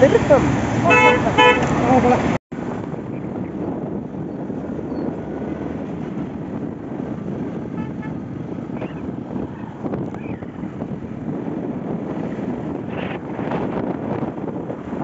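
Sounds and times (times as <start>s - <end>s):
road and wind rumble: 0.0s - 15.0s
vehicle horn toot: 0.9s - 1.8s, 7.7s - 8.2s.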